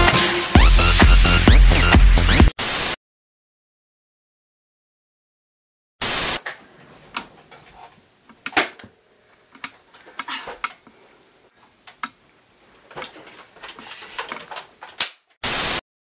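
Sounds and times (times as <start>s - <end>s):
static hiss: 0.0s - 3.0s, 6.0s - 6.6s, 15.4s - 15.8s.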